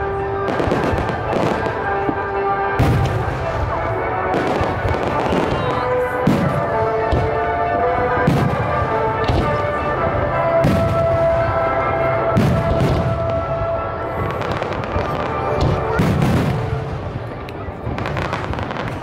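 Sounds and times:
fireworks bursting: 0.0s - 19.0s
music playing: 0.0s - 19.0s.

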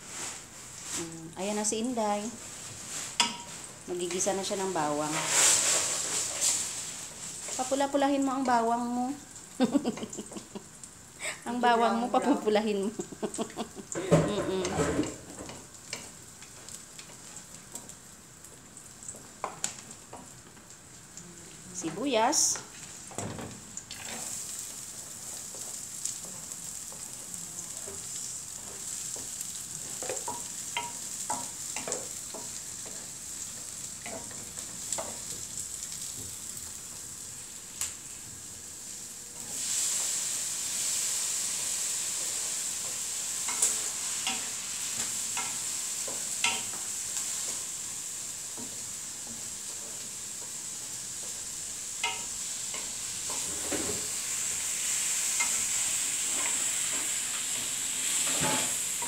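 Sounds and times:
onions sizzling in oil: 0.0s - 59.0s
wooden spatula scraping pan: 5.0s - 7.7s.

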